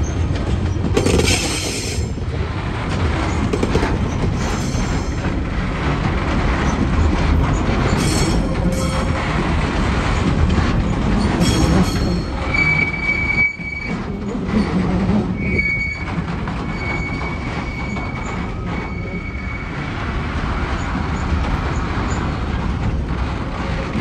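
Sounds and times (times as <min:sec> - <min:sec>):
train wheels rumbling on rail: 0:00.0 - 0:24.0
high-pitched wheel squeal: 0:11.2 - 0:19.9.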